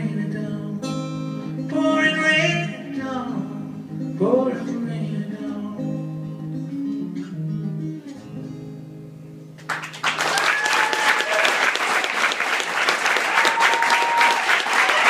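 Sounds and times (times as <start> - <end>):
acoustic guitar strumming: 0.0 - 9.9.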